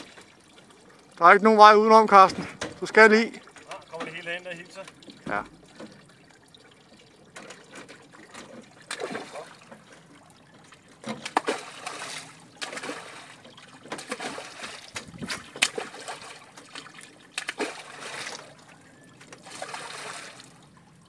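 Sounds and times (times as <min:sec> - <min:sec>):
fish thrashing and splashing: 0:04.8 - 0:20.6.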